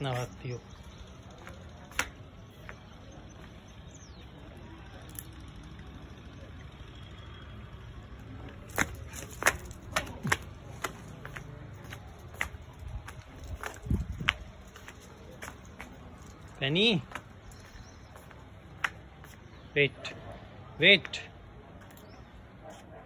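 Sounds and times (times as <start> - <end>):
footsteps on concrete: 0.1 - 3.9, 8.5 - 19.6.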